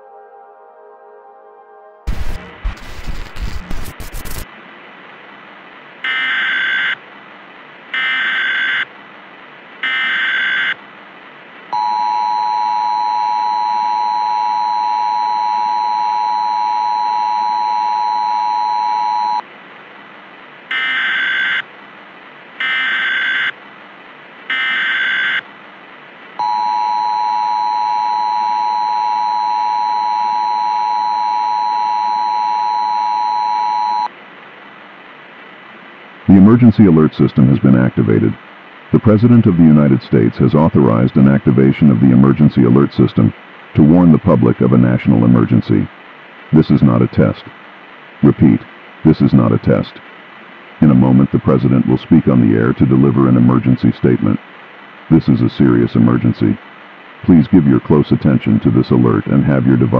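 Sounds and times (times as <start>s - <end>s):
screeching data bursts: 2.1s - 4.4s
steady hiss: 2.1s - 6.1s, 25.4s - 26.4s, 34.1s - 59.9s.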